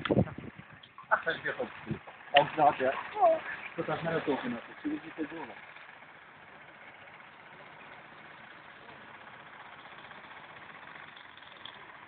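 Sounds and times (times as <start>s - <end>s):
faint outdoor background noise: 0.0s - 12.0s.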